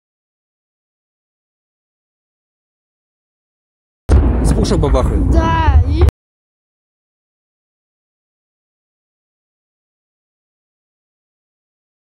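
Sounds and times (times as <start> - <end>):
spoken word: 4.7 - 6.1.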